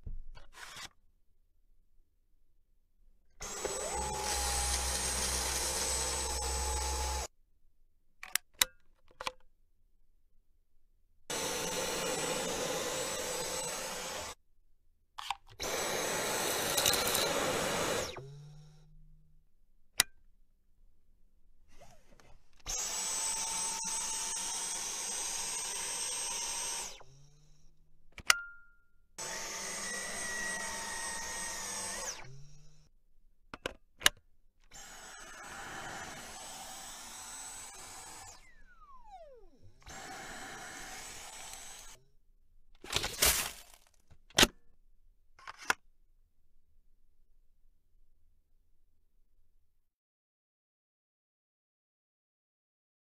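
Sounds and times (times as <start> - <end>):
vacuum motor whining: 3.4 - 7.3, 11.3 - 14.4, 15.6 - 18.9, 22.7 - 27.6, 29.2 - 32.8, 34.8 - 42.0.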